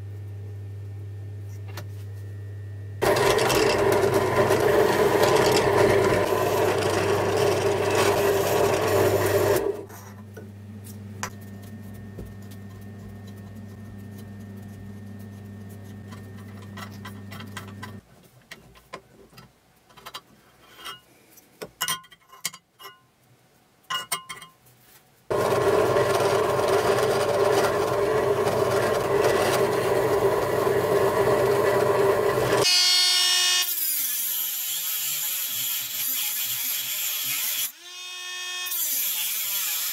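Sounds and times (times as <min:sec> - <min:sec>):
drill press cutting metal: 0:03.0 - 0:09.9, 0:25.3 - 0:32.7.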